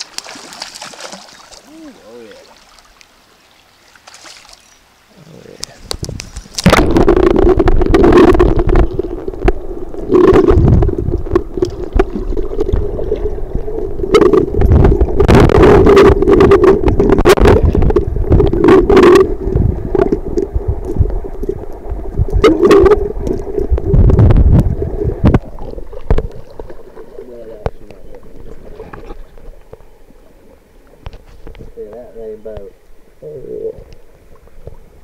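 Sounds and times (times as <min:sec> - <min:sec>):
underwater rushing water: 0:00.0 - 0:35.0
camera knocking underwater: 0:05.6 - 0:26.8.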